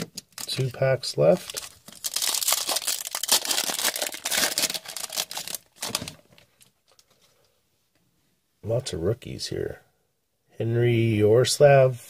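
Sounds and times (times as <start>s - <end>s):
foil wrapper crinkling: 1.4s - 7.0s.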